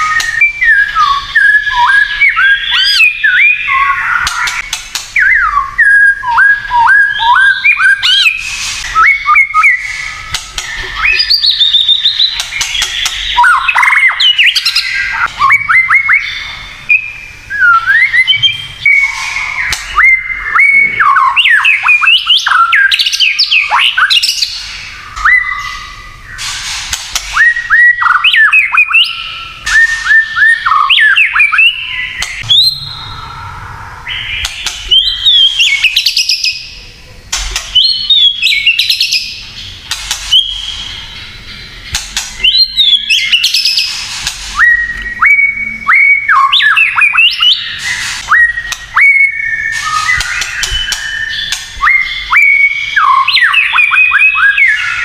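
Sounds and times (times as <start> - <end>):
bird whistling song: 0.0 - 36.8, 37.6 - 55.0
bird harsh clicks and rattles: 4.2 - 5.2, 26.4 - 27.4, 39.8 - 40.4, 41.9 - 42.5.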